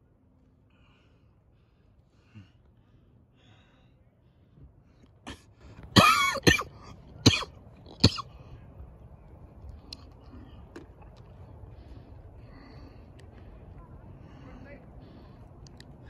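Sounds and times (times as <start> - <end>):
person coughing: 6.0 - 8.2.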